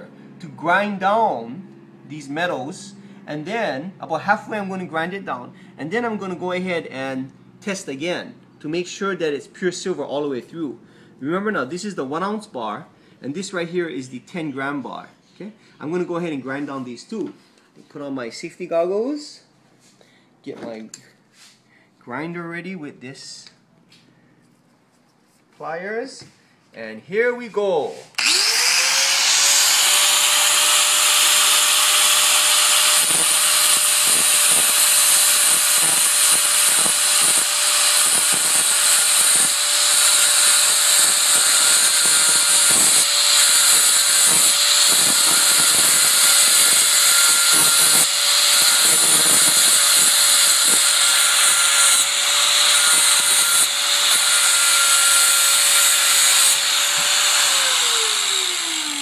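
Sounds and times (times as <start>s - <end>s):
angle grinder motor whine: 28.2s - 59.0s.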